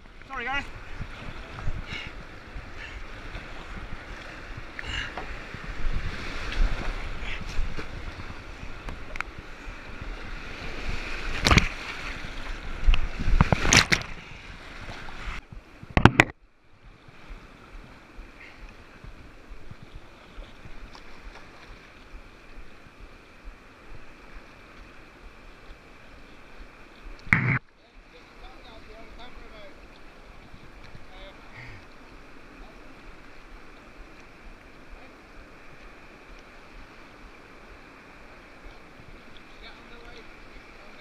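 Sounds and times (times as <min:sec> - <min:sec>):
water splashing over kayak: 0:00.0 - 0:41.0.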